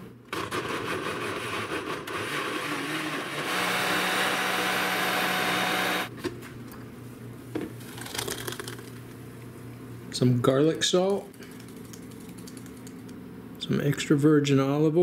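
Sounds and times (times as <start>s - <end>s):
blender pureeing: 0.3s - 6.1s.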